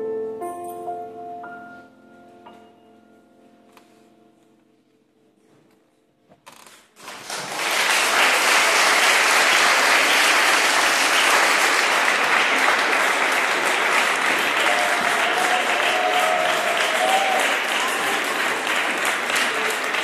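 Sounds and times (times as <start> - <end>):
children applauding: 7.0 - 20.0.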